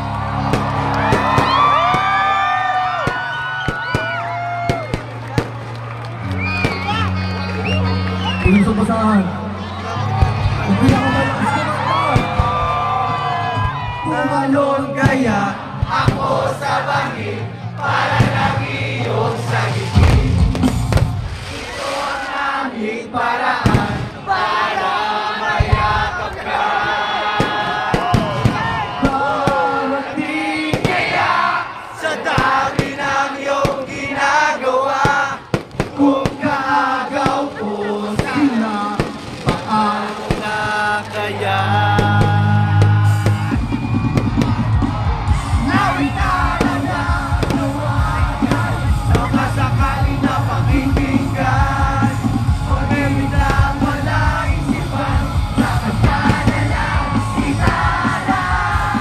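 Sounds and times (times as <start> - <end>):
fireworks bursting: 0.1 - 7.1, 10.1 - 13.0, 15.0 - 16.6, 18.1 - 22.8, 23.6 - 24.6, 25.4 - 26.5, 27.3 - 59.0
crowd singing along: 9.7 - 59.0
live band music: 17.8 - 22.2, 39.6 - 59.0.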